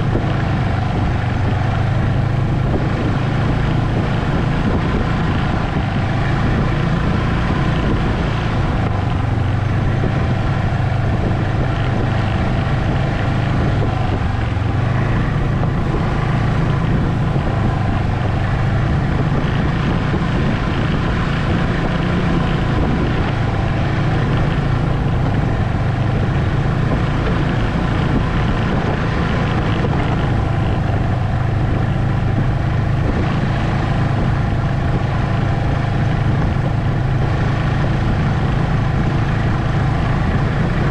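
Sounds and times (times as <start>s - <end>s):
snowmobile engine drone: 0.0s - 40.9s
snowmobile track noise: 0.0s - 40.9s.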